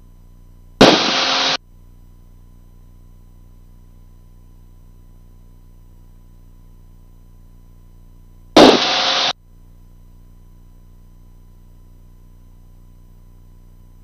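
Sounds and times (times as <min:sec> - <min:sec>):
radio static burst: 0:00.8 - 0:01.6, 0:08.6 - 0:09.3.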